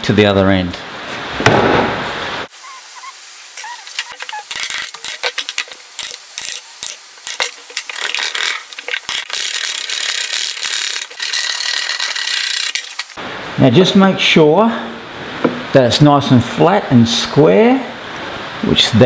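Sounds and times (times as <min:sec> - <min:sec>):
chisel scraping wood: 0:03.6 - 0:13.1.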